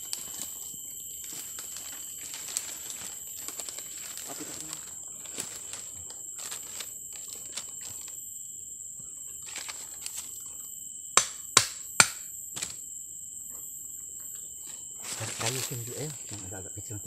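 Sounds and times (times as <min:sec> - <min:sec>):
sticks being handled: 0:00.0 - 0:08.1
machete chopping wood: 0:11.2 - 0:12.7.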